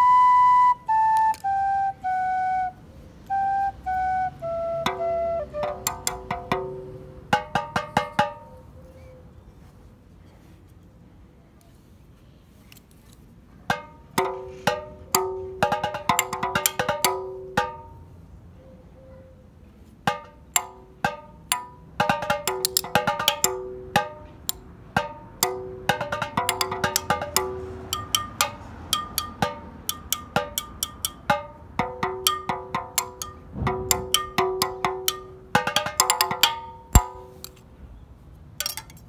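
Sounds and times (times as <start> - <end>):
balloon drums struck with spoons: 4.8 - 8.5, 13.7 - 18.0, 20.1 - 37.5.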